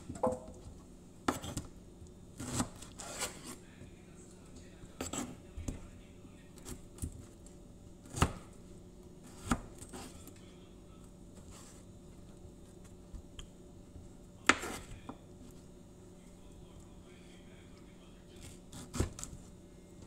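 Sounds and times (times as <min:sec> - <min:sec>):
faint steady hum: 0:00.0 - 0:20.0
knife chopping on cutting board: 0:01.2 - 0:01.7, 0:02.4 - 0:03.6, 0:05.0 - 0:05.8, 0:08.0 - 0:08.5, 0:09.2 - 0:10.2, 0:14.4 - 0:15.2, 0:18.4 - 0:19.4.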